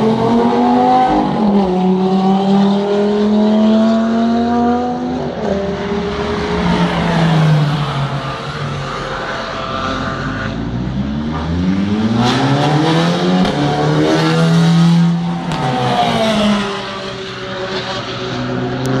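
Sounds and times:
race car engine passing by: 0.0s - 19.0s.

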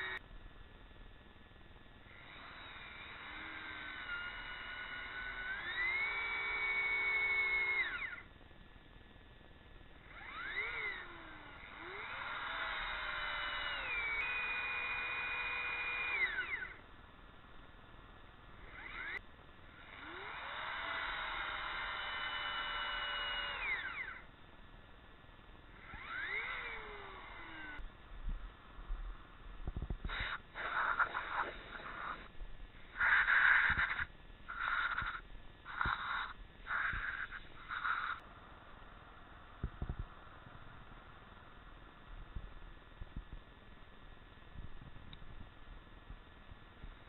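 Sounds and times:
electric drill boring into wood: 0.0s - 0.2s, 2.1s - 8.3s, 10.0s - 16.8s, 18.6s - 24.3s, 25.8s - 27.8s, 30.1s - 32.3s, 32.9s - 38.2s.

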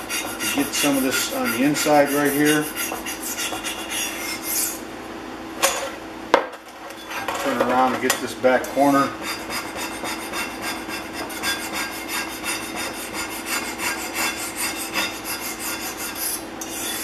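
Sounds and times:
blade scraping rusty metal: 0.0s - 4.8s, 9.0s - 17.0s.

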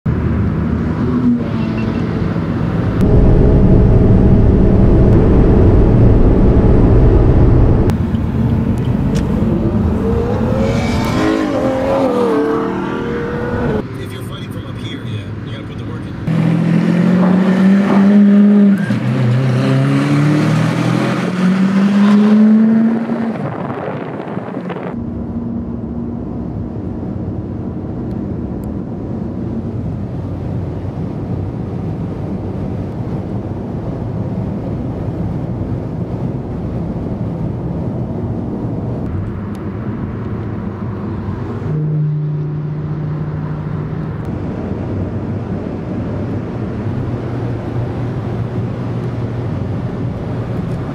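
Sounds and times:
road and wind noise: 0.1s - 50.9s
sports car accelerating hard: 2.8s - 13.8s, 16.3s - 28.4s.

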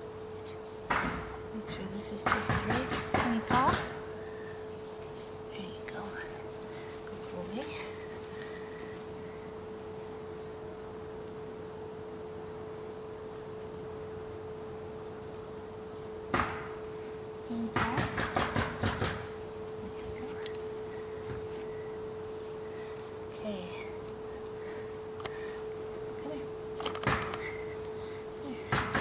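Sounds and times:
insect chirping: 0.0s - 29.0s
steady low hum: 0.0s - 29.0s
sharp knock: 16.3s - 16.8s, 17.8s - 19.3s.

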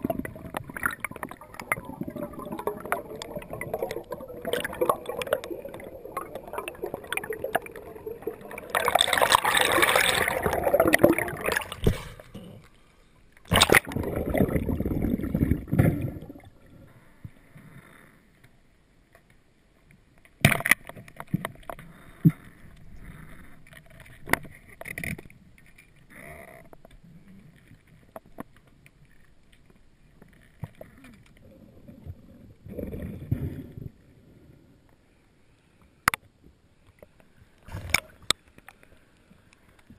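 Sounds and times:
underwater gurgling and bubbling: 0.0s - 12.6s, 13.5s - 17.0s, 30.9s - 34.0s.

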